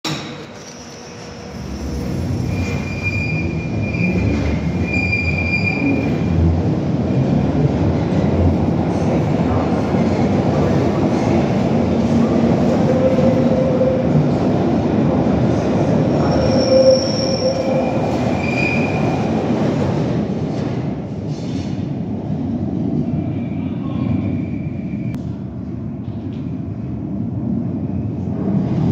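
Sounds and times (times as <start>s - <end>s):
underground train rumbling: 0.0s - 28.9s
high-pitched wheel squeals: 0.6s - 6.3s, 16.2s - 19.2s.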